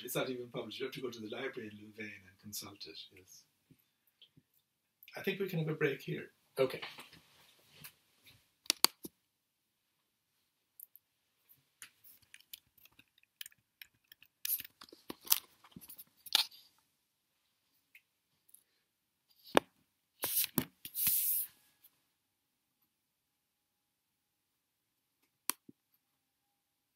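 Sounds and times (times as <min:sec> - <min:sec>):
device handling clicks and rubbing: 0:08.6 - 0:09.1, 0:11.8 - 0:16.6.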